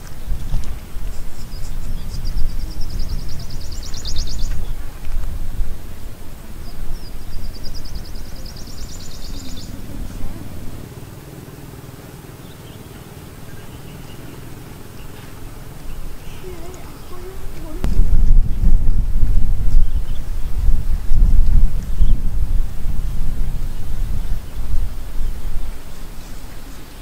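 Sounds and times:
wind buffeting microphone: 0.0 - 27.0
small bird trilling: 6.6 - 10.9.

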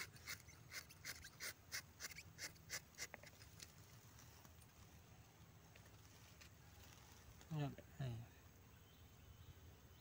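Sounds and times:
knife scraping tree bark: 0.0 - 3.8.

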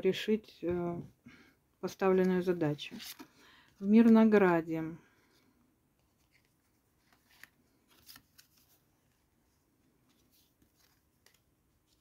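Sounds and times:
cards rustling and tapping on cloth: 9.9 - 12.0.

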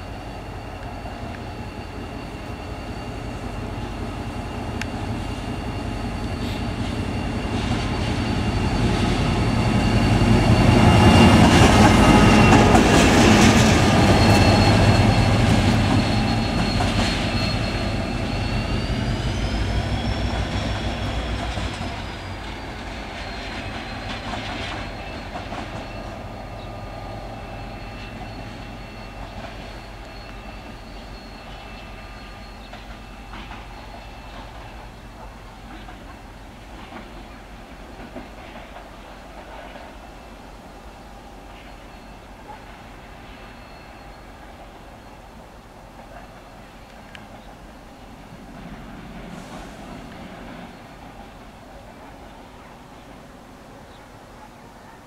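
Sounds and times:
high wheel squeal: 0.0 - 40.4, 41.3 - 45.5
diesel locomotive passing: 0.0 - 55.0.

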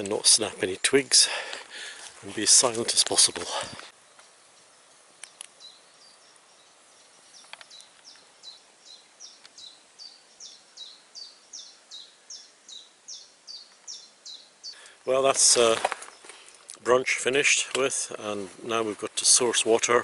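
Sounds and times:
songbird singing high notes: 4.6 - 15.0
faint clicks: 5.2 - 5.6, 7.4 - 8.3, 9.4 - 9.6.

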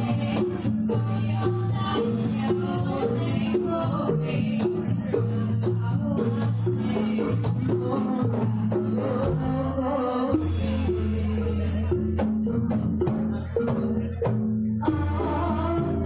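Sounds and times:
drum strokes: 10.3 - 16.0
gamelan ensemble playing: 10.3 - 16.0.

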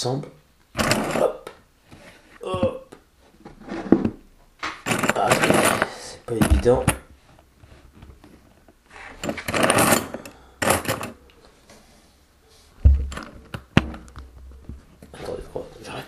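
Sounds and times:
backpack rustling and scraping: 3.3 - 4.2, 4.9 - 11.2.

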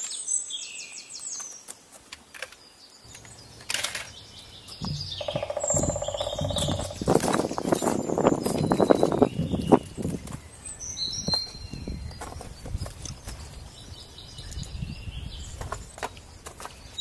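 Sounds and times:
songbirds chirping: 0.0 - 17.0
hiker climbing over rocks: 1.4 - 17.0
trekking poles knocking: 3.1 - 9.2.

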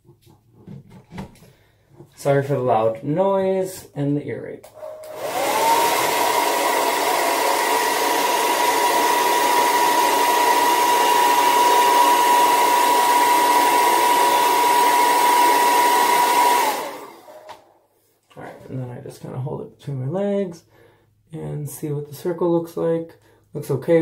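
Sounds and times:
hair dryer running: 4.7 - 17.8.

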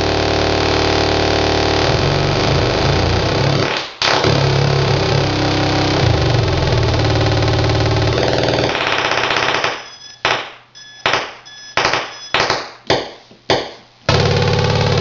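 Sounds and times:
harsh buzzing synth drone: 0.0 - 10.0, 14.1 - 15.0
sharp synth blips: 4.1 - 12.7.

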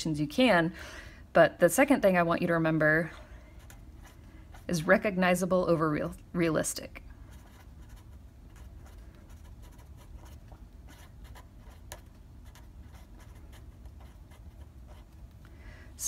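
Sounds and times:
faint low hum: 0.0 - 16.0
felt-tip pen scratching on paper: 7.3 - 15.2.

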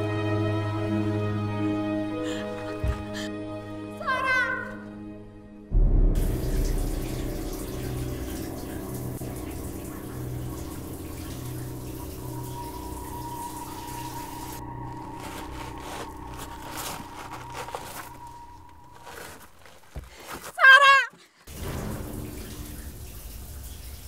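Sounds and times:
low pulsing hum: 5.7 - 19.6
shower water running: 6.2 - 20.0, 21.5 - 24.0.

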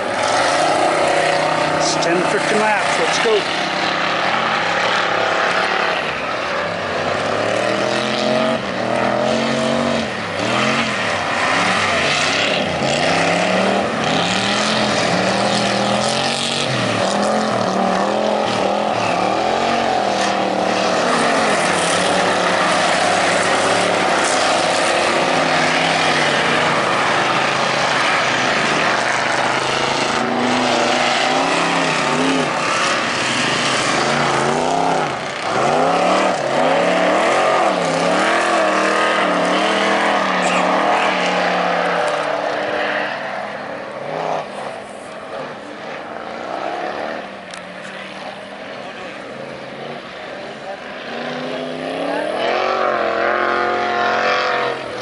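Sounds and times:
steady rushing noise: 0.0 - 7.2
stock car engines revving: 0.0 - 55.0.

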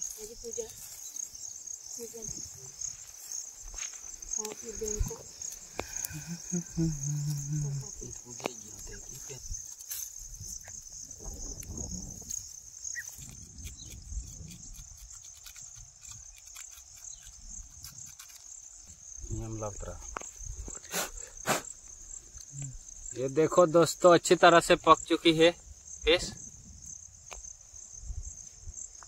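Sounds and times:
sticks and leaves rustling: 0.0 - 19.1
insects chirping: 0.0 - 29.0.

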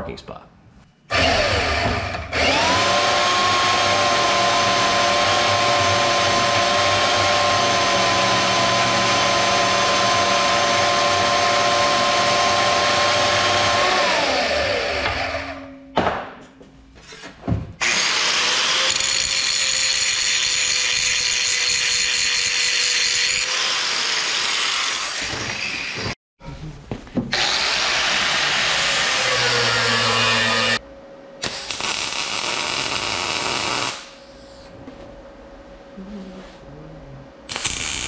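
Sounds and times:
band saw cutting steel: 1.1 - 15.6, 17.8 - 26.2, 27.4 - 30.8
angle grinder grinding steel: 17.8 - 26.1, 27.4 - 30.8.

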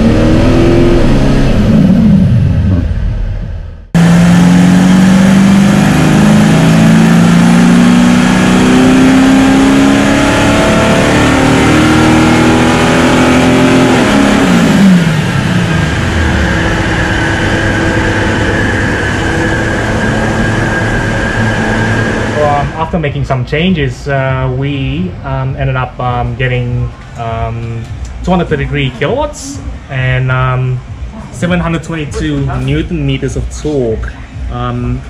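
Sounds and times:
diesel engine revving at full throttle: 0.0 - 3.2, 3.9 - 22.9
high whine: 0.0 - 35.0.

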